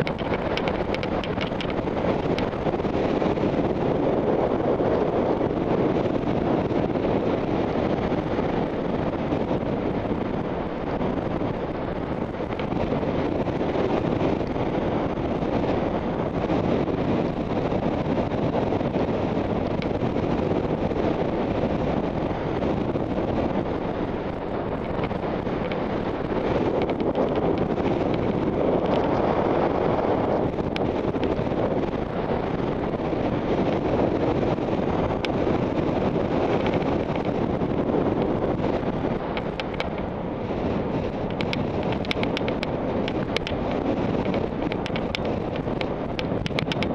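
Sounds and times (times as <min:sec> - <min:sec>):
rushing wind noise: 0:00.0 - 0:46.9.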